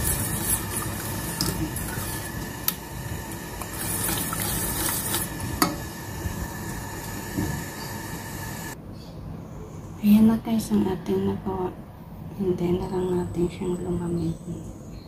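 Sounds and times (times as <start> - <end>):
whisk stirring thick sauce: 0.0 - 2.5, 3.6 - 5.4.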